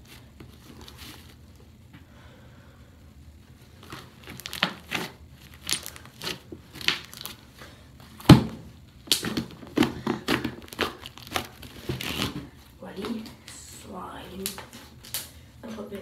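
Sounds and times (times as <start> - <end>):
slime popping and squelching: 3.8 - 7.5, 8.2 - 12.4.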